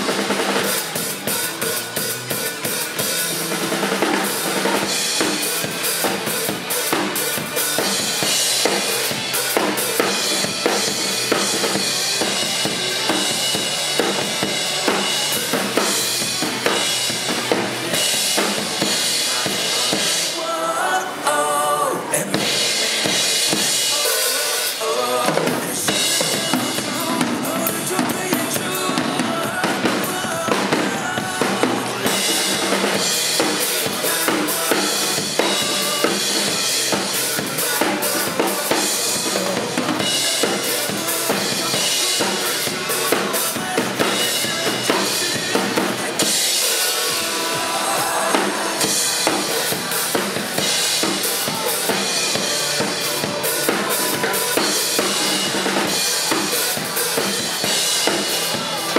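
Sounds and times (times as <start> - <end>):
rock backing track: 0.0 - 20.4, 22.1 - 58.9
cymbals: 22.3 - 58.9.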